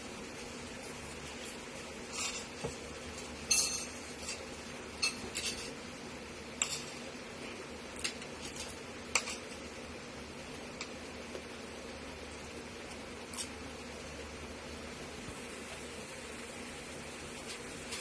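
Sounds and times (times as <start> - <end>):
fork scraping and clinking on plate: 5.0 - 5.8, 6.6 - 7.0, 8.0 - 9.5.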